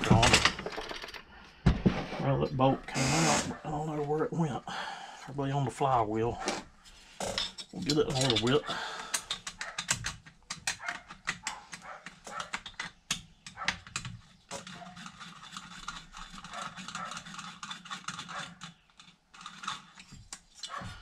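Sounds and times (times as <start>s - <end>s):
metallic clicks of tool and bolts: 7.3s - 20.8s.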